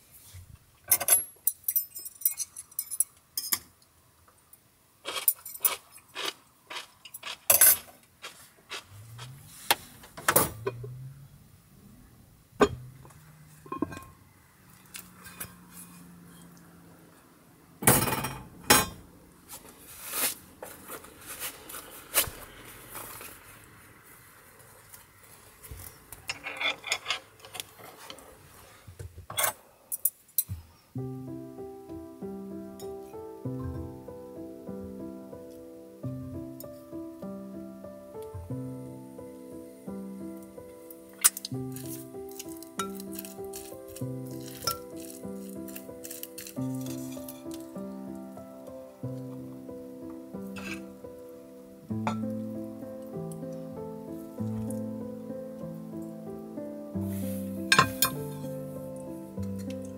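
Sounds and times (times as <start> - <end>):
low metal scraping: 8.7 - 16.6
metal pot and lid clanking: 13.7 - 14.2, 52.0 - 52.3, 57.7 - 58.5.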